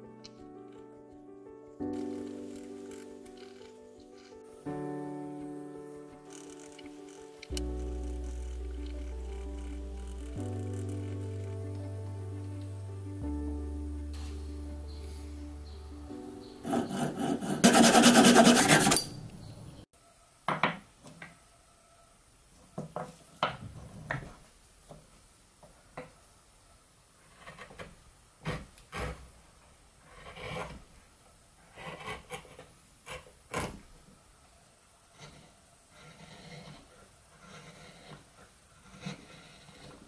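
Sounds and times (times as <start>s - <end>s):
chisel scraping cuts into wood: 16.6s - 19.2s, 27.4s - 29.3s, 31.7s - 33.8s, 35.2s - 40.0s
hand saw cutting wood: 16.6s - 19.2s, 28.4s - 29.3s, 30.1s - 30.8s, 31.7s - 33.8s, 35.2s - 40.0s.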